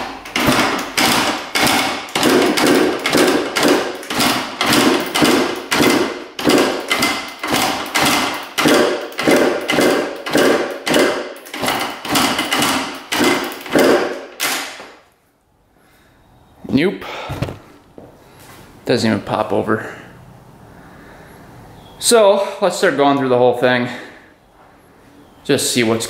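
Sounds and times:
dirt bike kickstart clattering: 0.0 - 14.9.

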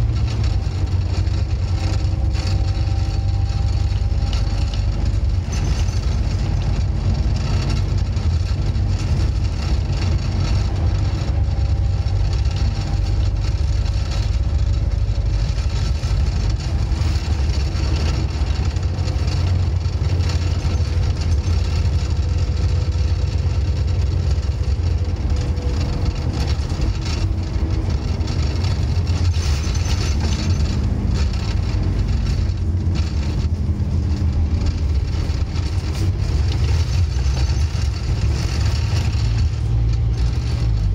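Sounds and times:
bus engine drone: 0.0 - 40.9
road and tyre noise: 0.0 - 40.9.

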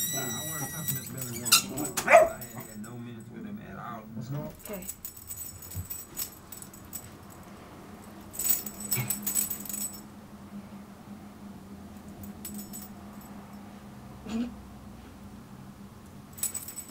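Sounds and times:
dog collar tags jingling: 0.0 - 3.3, 4.5 - 10.0, 12.2 - 13.6, 16.4 - 16.9
low steady hum: 0.0 - 16.9.

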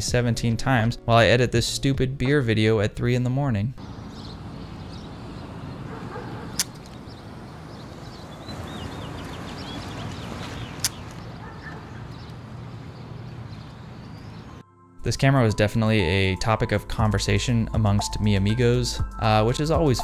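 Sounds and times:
bird chirping: 3.8 - 14.6.

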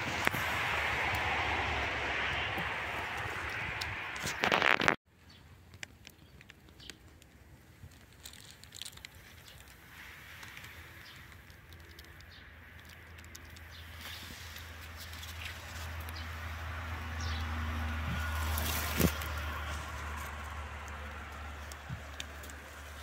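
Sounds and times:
leaf litter crackling: 5.6 - 23.0
footsteps crunching dry leaves: 13.8 - 23.0.

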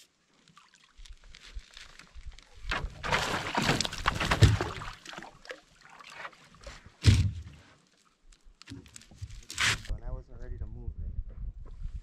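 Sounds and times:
water splashing by a canoe: 0.0 - 9.9
loud thump: 7.0 - 7.5.

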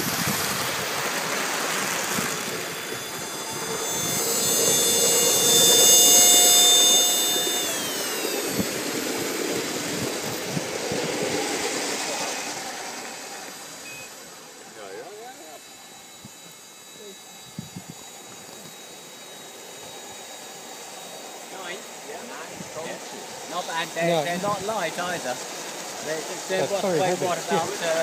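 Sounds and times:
steady rushing noise: 0.0 - 13.8
steam turbine whine: 0.0 - 28.0.

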